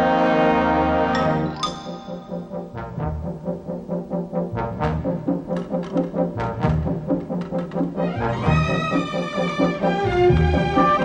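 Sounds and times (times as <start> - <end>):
brass film score: 0.0 - 11.0
held higher notes: 0.0 - 11.0.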